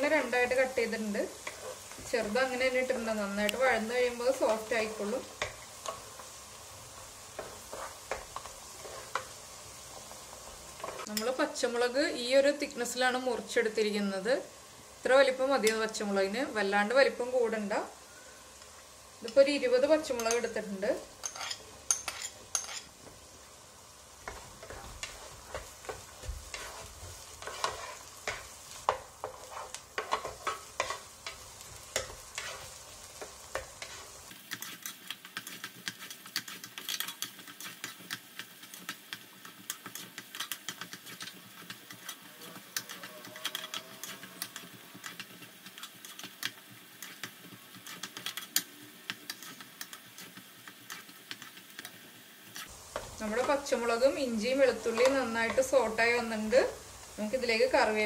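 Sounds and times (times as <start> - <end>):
vegetables sizzling in hot oil: 0.0 - 58.0
wooden spatula stirring: 1.3 - 3.1, 3.7 - 11.3, 24.2 - 56.4.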